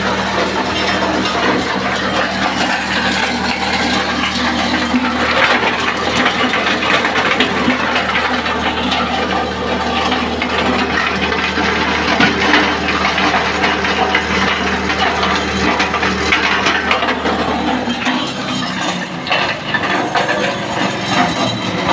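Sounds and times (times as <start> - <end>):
engine hum: 0.0 - 21.9
rattle of maize being threshed: 0.0 - 21.9.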